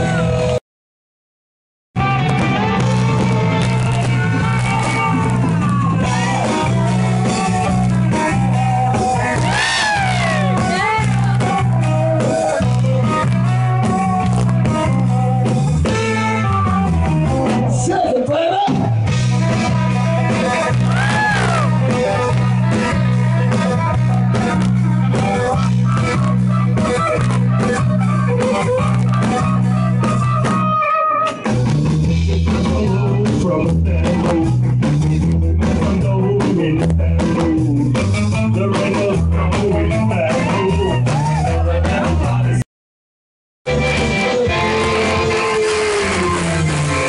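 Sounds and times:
bass line: 0.0 - 0.6, 2.0 - 42.6, 43.6 - 47.0
live rock band playing: 0.0 - 0.6, 2.0 - 42.6, 43.7 - 47.0
saxophone: 8.6 - 11.2.

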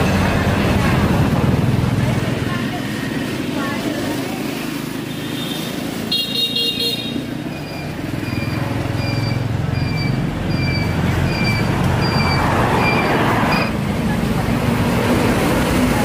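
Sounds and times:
high electronic beep: 7.5 - 13.8.

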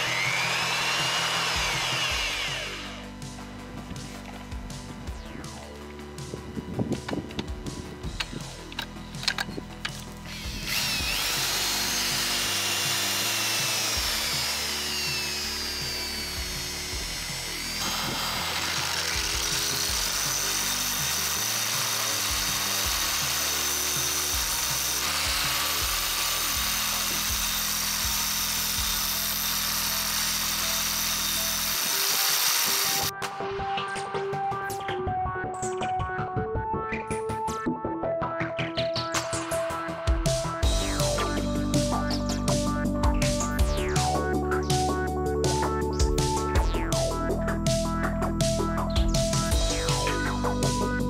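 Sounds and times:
angle grinder whining: 0.0 - 4.4, 6.9 - 33.1
electronic background music: 0.0 - 51.0.

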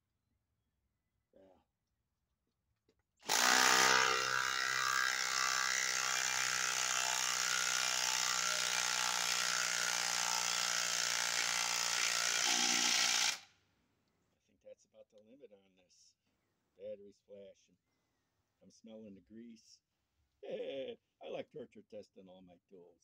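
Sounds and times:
impact driver hammering: 3.2 - 13.4.

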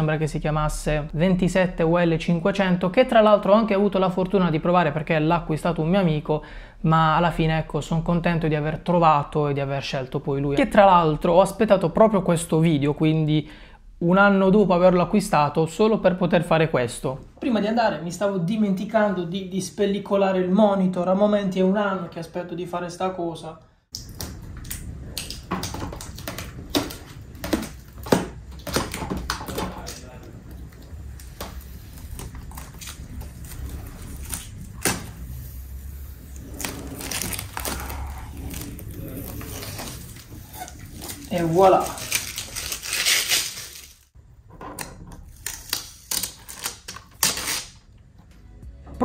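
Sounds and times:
plastic film peeling and crackling: 24.0 - 44.1, 45.2 - 48.0.

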